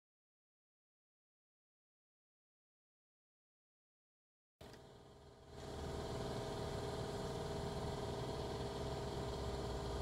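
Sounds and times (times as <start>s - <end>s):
engine idling: 4.7s - 10.0s.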